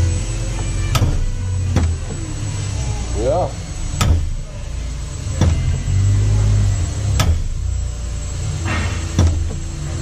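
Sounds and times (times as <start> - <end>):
steady low hum: 0.0 - 10.0
metal door clunks: 0.9 - 2.2, 4.0 - 4.4, 5.4 - 5.7, 8.7 - 9.7.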